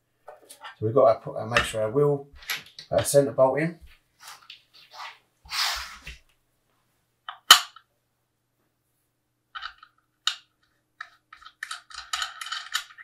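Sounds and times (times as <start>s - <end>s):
small metal parts clicking: 11.0s - 13.0s.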